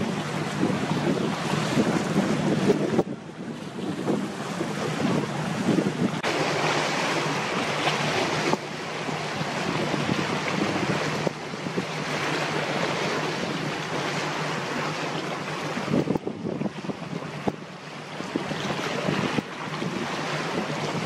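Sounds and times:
sea waves: 0.0 - 21.0
wind on microphone: 0.0 - 21.0.

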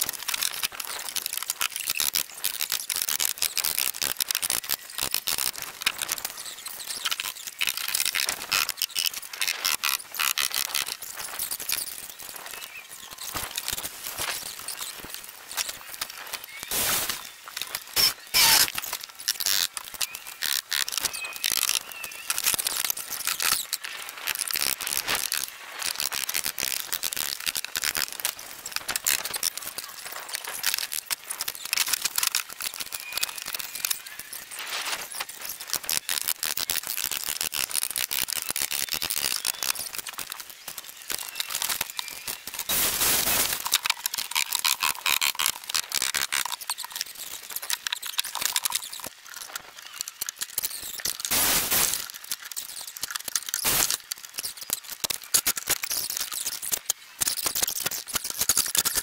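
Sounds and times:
high squeaks: 16.5 - 22.5.

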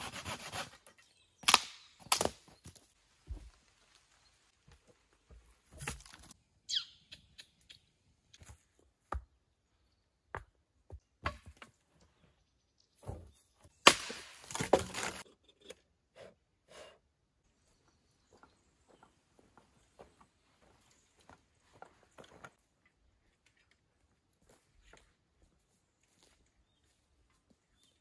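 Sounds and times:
wooden poles clattering: 13.9 - 15.3.

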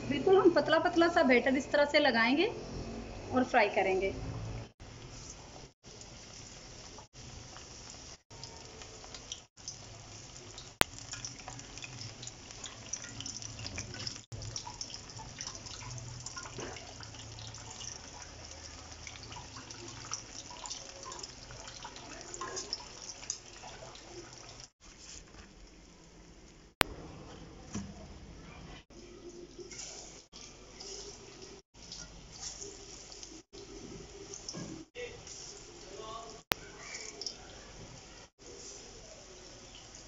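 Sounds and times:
food sizzling in hot oil: 0.0 - 25.4, 29.6 - 40.0.

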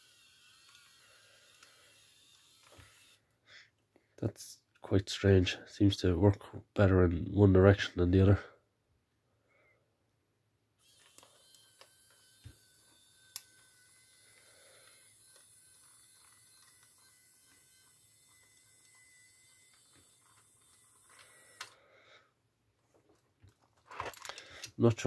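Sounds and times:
electric motor high whine: 0.0 - 3.2, 10.8 - 21.8.

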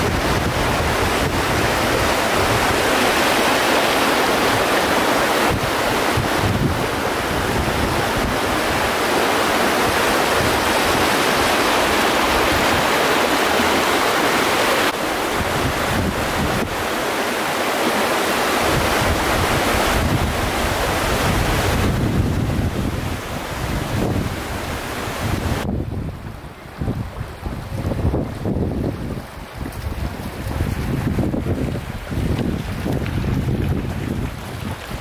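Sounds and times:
floodwater rushing roar: 0.0 - 35.0.

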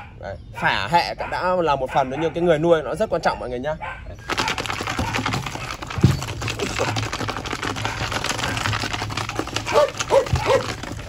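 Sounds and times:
chain-link pen rattling: 4.2 - 11.0
puppy claws clattering on tiles: 4.2 - 11.0.

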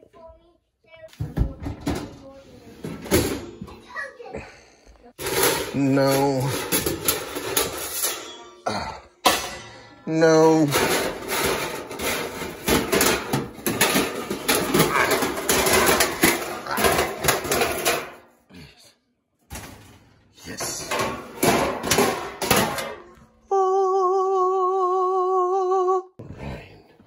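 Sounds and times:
metal pans clattering and scraping: 1.2 - 3.9, 5.1 - 18.4, 19.5 - 23.4.

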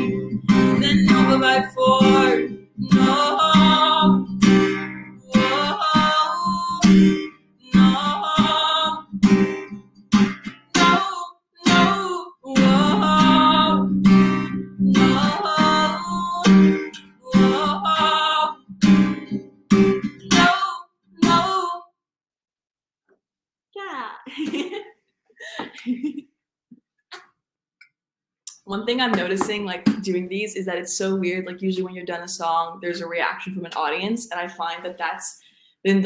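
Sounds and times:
strummed acoustic guitar: 0.0 - 20.6, 21.2 - 21.7, 28.9 - 30.2
woman singing: 0.6 - 4.4, 5.3 - 9.1, 10.8 - 13.9, 14.9 - 18.6, 20.3 - 21.8.

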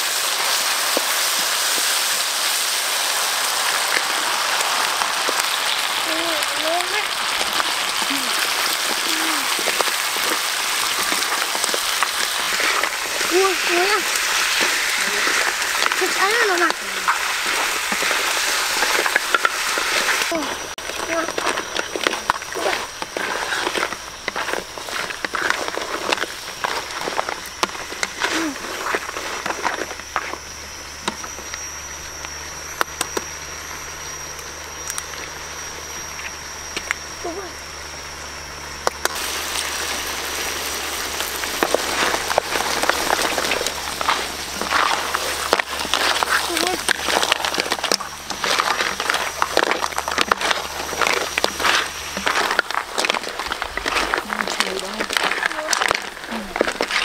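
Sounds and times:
food sizzling in hot oil: 0.0 - 31.8, 36.4 - 57.0
steady high whine: 0.0 - 57.0
low hum: 0.2 - 57.0
spatula stirring in a wok: 7.1 - 30.4, 39.1 - 57.0.

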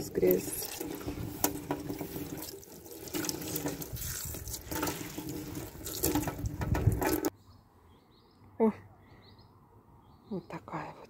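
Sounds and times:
water splashing into bathtub: 0.0 - 7.3
sponge scrubbing: 0.4 - 7.3.

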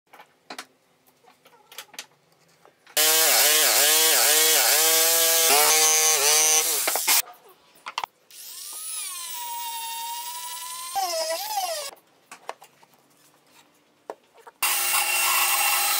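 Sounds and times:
electric jigsaw cutting wood: 3.0 - 7.2, 14.6 - 15.9.

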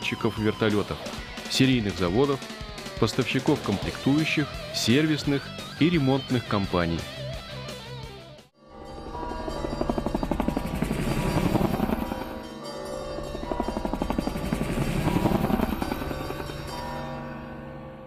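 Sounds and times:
music: 0.0 - 18.0
helicopter rotor blades chopping: 9.0 - 17.3.

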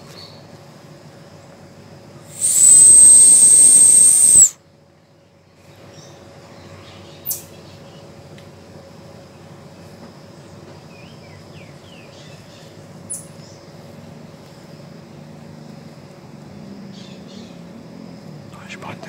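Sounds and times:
low forest hum: 0.0 - 19.0
faint falling chirps: 2.4 - 4.6
sharp high peep: 2.4 - 4.6.

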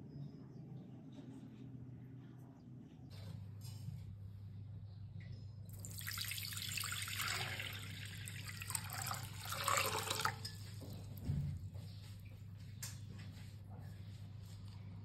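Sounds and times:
low steady hum: 0.0 - 15.0
water pouring into a glass bowl: 5.8 - 10.7.

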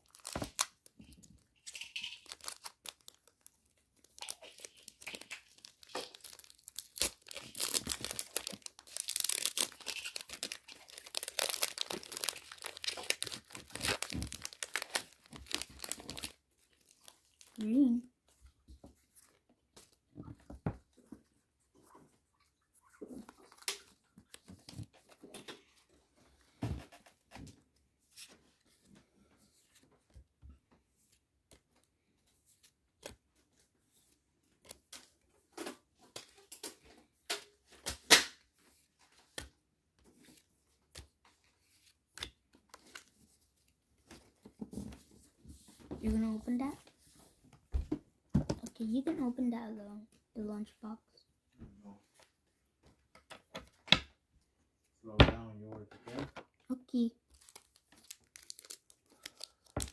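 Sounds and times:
foil wrapper torn open: 0.0 - 0.9, 1.7 - 17.6, 57.3 - 59.9.

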